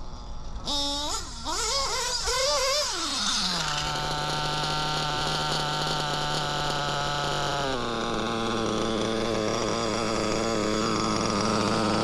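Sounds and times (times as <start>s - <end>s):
nitro engine revving and idling: 0.0s - 12.0s.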